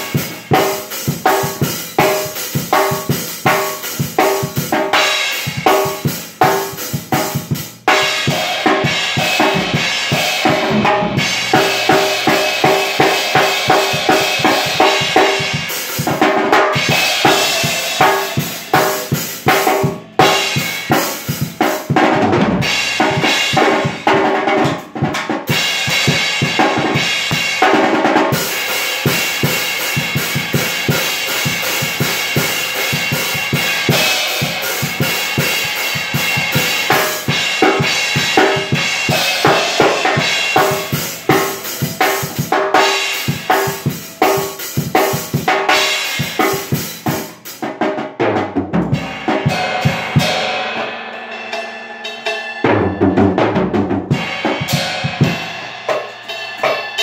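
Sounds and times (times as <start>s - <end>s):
cymbals: 0.0s - 24.4s, 25.5s - 47.5s, 48.9s - 57.0s
bass drum: 0.0s - 47.3s, 48.2s - 50.5s
heavy low drum hits: 5.5s - 24.8s, 28.5s - 42.4s.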